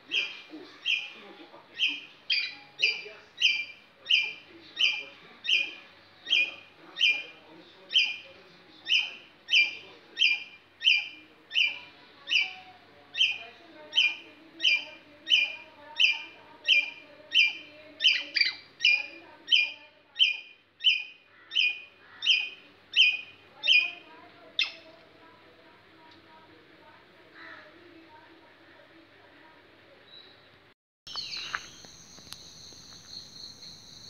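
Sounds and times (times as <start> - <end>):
squirrel calling harsh notes: 1.8 - 5.7.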